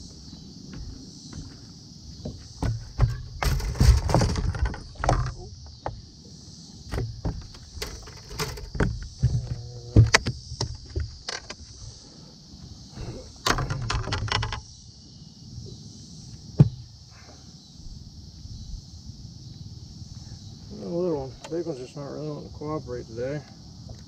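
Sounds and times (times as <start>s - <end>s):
knocks and thumps on boat deck: 0.7s - 6.1s, 6.9s - 11.6s, 16.5s - 16.9s.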